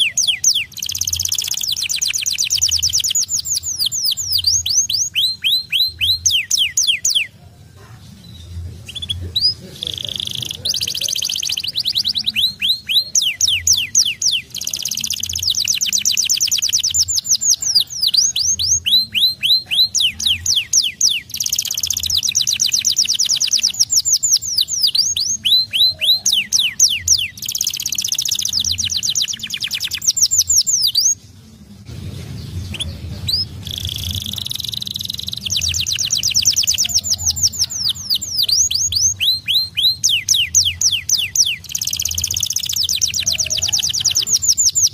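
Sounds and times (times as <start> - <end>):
canary singing: 0.0 - 44.9.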